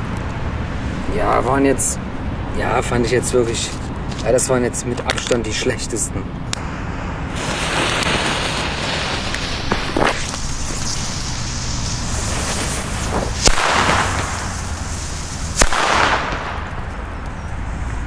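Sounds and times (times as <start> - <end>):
fuse hissing: 6.5 - 16.8
firecracker bangs: 7.3 - 17.2.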